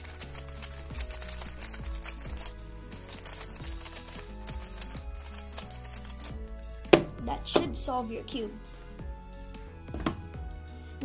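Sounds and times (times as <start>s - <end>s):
plastic puzzle cube clicking: 0.0s - 6.4s
background music: 0.0s - 11.0s.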